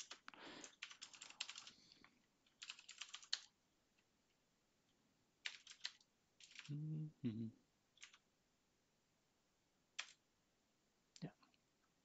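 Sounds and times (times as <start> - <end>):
computer keyboard typing: 0.0 - 3.6, 5.4 - 6.7, 8.0 - 8.2, 10.0 - 10.2.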